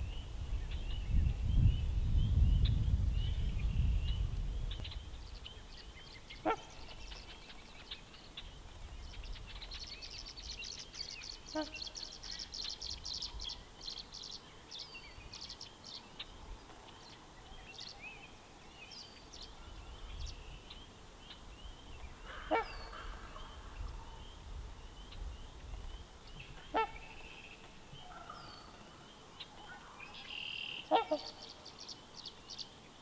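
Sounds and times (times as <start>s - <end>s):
songbirds chirping and trilling: 0.0s - 33.0s
swans honking: 26.6s - 27.4s, 29.7s - 31.6s.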